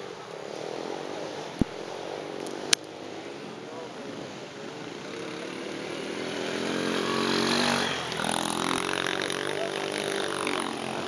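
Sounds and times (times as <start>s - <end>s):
motocross bike engine revving: 0.5s - 11.0s.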